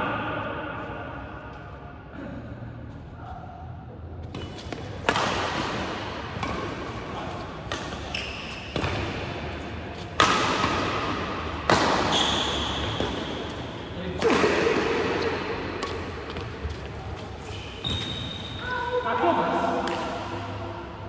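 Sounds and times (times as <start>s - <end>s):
rackets hitting shuttlecock: 4.3s - 18.2s, 19.8s - 20.6s.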